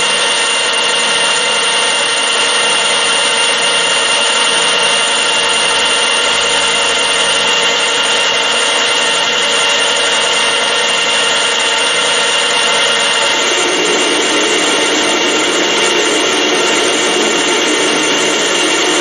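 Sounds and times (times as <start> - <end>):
metal lathe whine: 0.0 - 19.0
hiss of metal cutting: 13.1 - 19.0.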